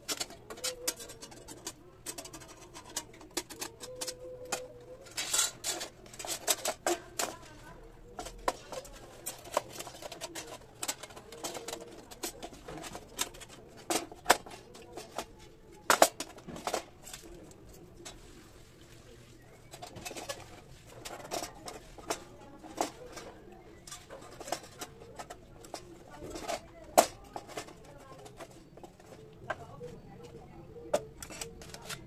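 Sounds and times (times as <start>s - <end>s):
metal panels clinking: 0.0s - 18.2s, 19.6s - 29.8s
bird cooing: 0.1s - 5.8s.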